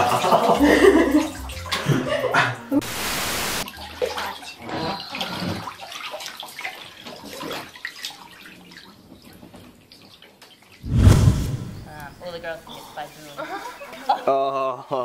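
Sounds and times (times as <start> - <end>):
static hiss: 2.8 - 3.6
water splashing in bathtub: 3.6 - 10.8.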